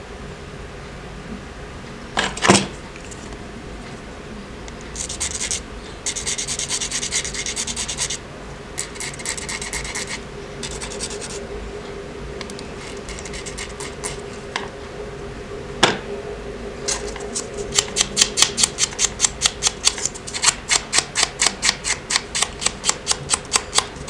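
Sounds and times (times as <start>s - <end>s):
plastic rod scratching on sandpaper: 5.0s - 8.2s, 8.8s - 11.4s, 12.8s - 14.2s.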